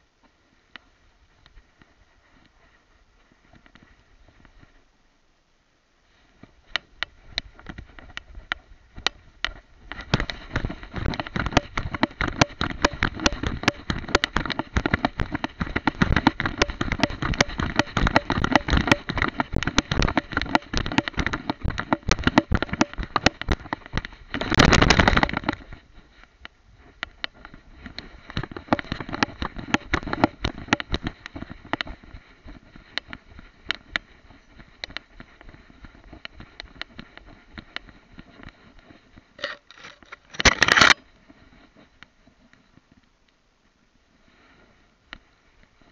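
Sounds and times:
camera rubbing against fur and grass: 6.1s - 42.5s.

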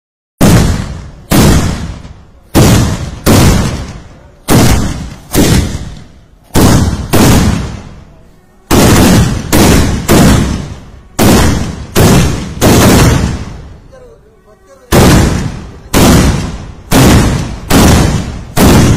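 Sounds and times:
loud sharp firework bangs: 0.4s - 13.9s, 14.9s - 18.9s.

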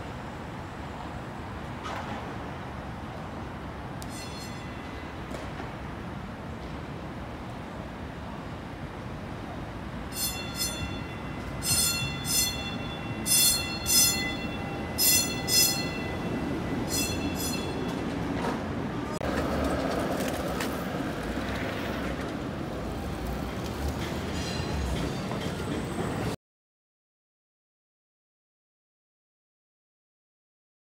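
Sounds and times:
street traffic rumble: 0.0s - 26.4s
streetcar rumbling on rails: 0.0s - 26.4s
streetcar bell double dings: 3.9s - 5.7s, 10.0s - 18.7s, 23.5s - 26.4s.

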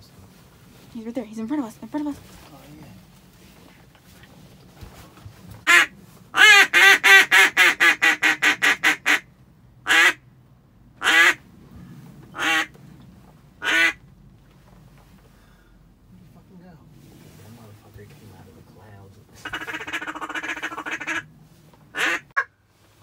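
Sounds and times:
duck call quacking: 5.7s - 9.2s, 9.9s - 10.2s, 11.0s - 11.4s, 12.4s - 12.7s, 13.6s - 14.0s, 19.4s - 21.3s, 22.0s - 22.5s.

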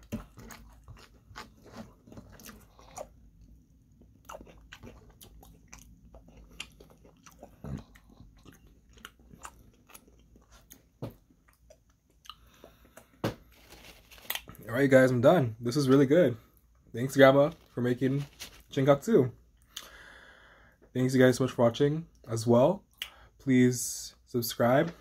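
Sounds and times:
faint chewing and crunching: 0.0s - 14.7s, 15.6s - 20.0s.

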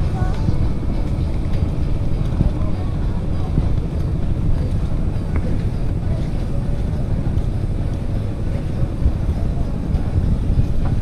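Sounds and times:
boat engine rumbling: 0.0s - 11.0s
wind buffeting microphone: 0.0s - 11.0s.

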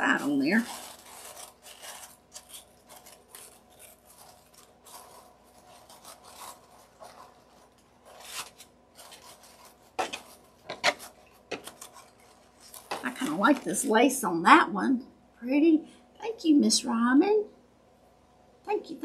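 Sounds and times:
paper filters rustling: 0.0s - 14.2s.

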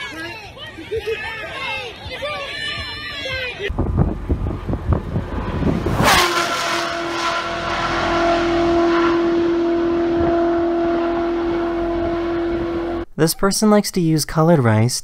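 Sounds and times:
car engine rumbling and crackling: 3.7s - 13.0s
car whooshing past: 3.7s - 13.0s.

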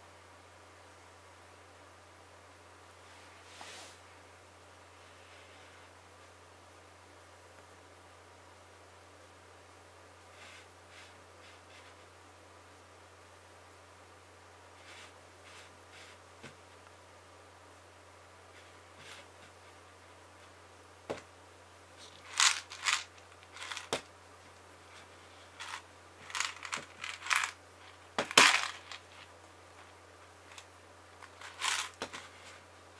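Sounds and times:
faint hiss: 0.0s - 32.9s
soft rustles: 3.0s - 4.1s, 22.0s - 32.8s
crackers rattling in jar: 22.0s - 24.0s, 25.6s - 29.3s, 31.2s - 32.0s.

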